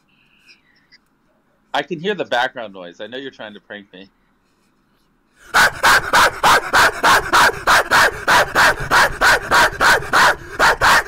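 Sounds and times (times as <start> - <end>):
man barking like a dog: 5.5 - 11.0.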